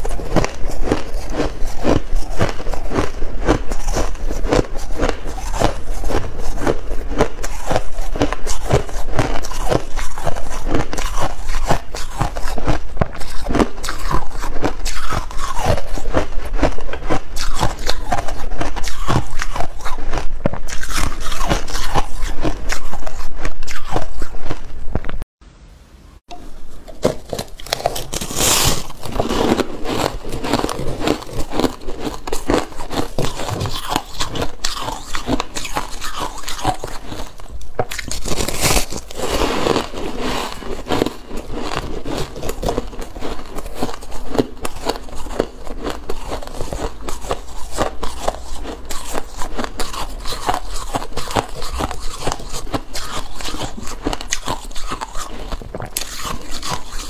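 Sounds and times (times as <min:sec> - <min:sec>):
ice crunching: 0:26.9 - 0:57.0.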